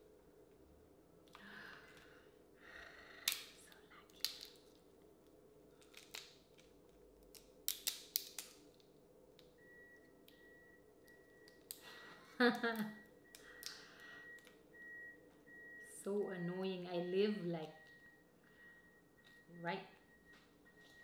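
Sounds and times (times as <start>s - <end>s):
crawfish shells cracking: 3.2s - 4.8s, 5.8s - 8.8s
shell rustling: 5.7s - 8.8s.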